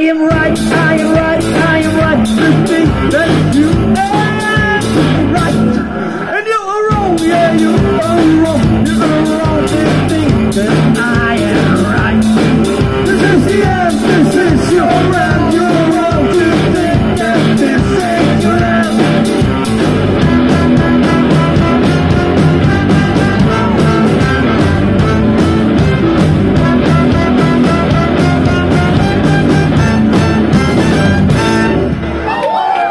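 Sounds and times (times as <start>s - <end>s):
electric guitars: 0.0s - 6.4s, 7.0s - 32.9s
person singing: 0.0s - 19.4s, 20.2s - 25.6s
drum kit with cymbals: 0.3s - 5.8s, 6.9s - 32.2s
trumpet and trombone horns: 20.2s - 32.3s.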